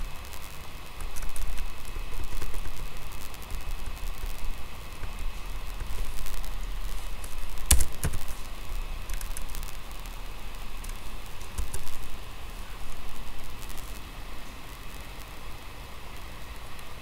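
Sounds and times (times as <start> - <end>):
low hum and hiss: 0.0 - 17.0
keyboard keys clicking: 10.8 - 12.0.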